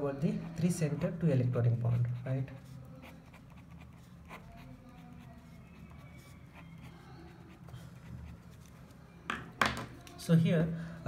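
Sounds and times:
pen scratching on paper: 1.7 - 8.8.

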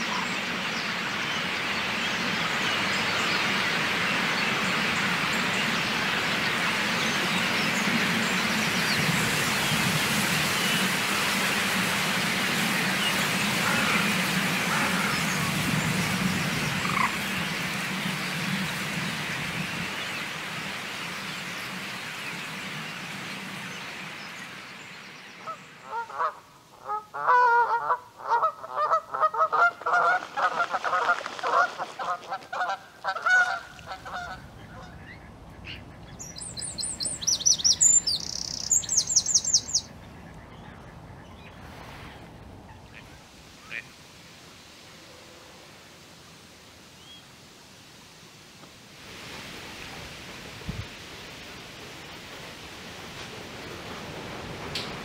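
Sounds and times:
starling flock wings and chatter: 2.0 - 24.6
waterfowl honking: 13.0 - 15.4, 16.7 - 17.2, 25.5 - 35.8
small bird chirps: 36.2 - 39.9.

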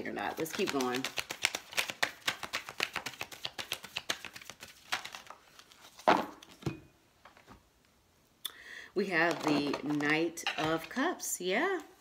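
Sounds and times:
cards being shuffled: 0.0 - 6.6, 9.2 - 11.0.

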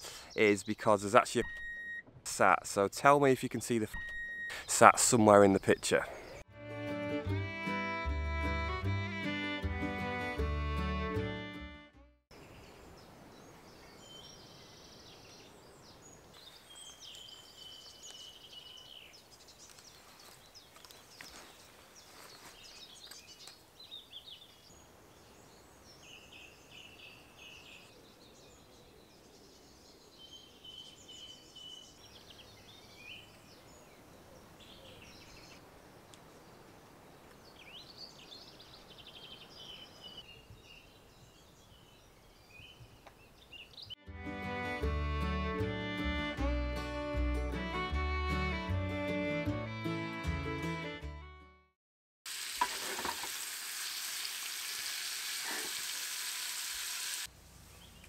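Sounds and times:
birds singing: 12.4 - 44.0.

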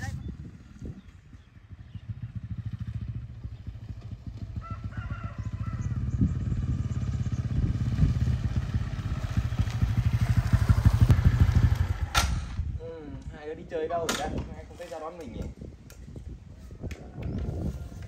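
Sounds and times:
motorcycle engine approaching: 0.0 - 12.8.

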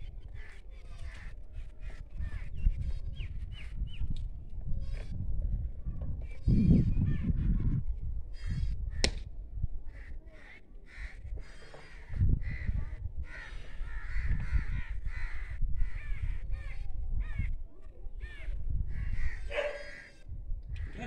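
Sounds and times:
crows cawing: 10.0 - 16.3, 18.9 - 20.2.

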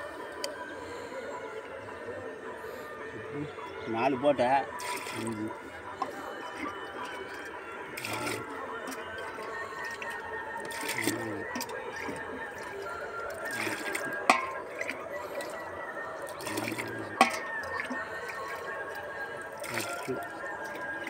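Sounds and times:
water pouring and splashing: 4.8 - 15.6, 16.2 - 21.0.

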